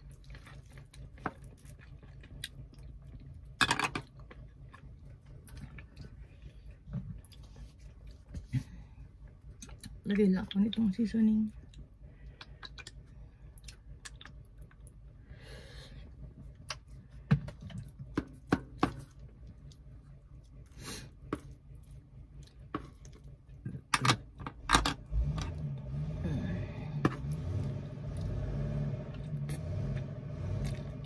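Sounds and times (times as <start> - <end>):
chewing: 0.0 - 3.5, 4.2 - 8.6, 11.6 - 15.0, 29.1 - 31.0
low steady rumble: 0.0 - 31.0.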